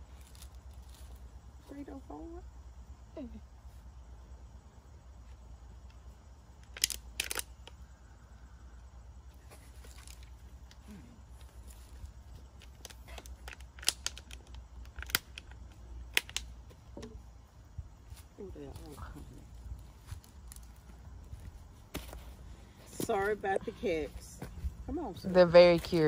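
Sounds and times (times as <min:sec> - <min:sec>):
steady low rumble: 0:14.5 - 0:26.0.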